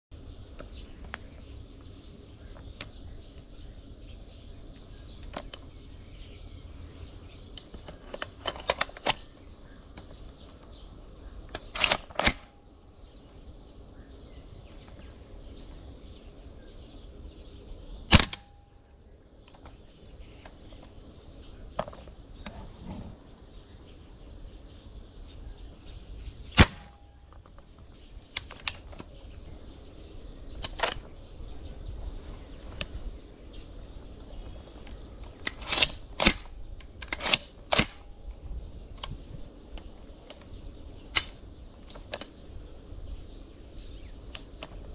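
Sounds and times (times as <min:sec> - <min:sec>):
faint outdoor background noise: 0:00.1 - 0:44.9
airsoft rifle shots cracking: 0:11.5 - 0:12.6, 0:18.1 - 0:18.6, 0:26.5 - 0:27.2, 0:35.4 - 0:38.1.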